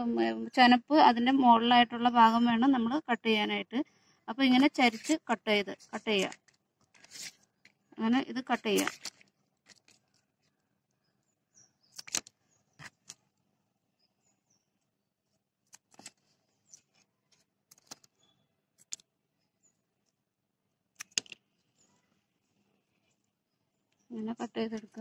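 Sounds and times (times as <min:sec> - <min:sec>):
scissors snipping stems: 0:08.5 - 0:09.9.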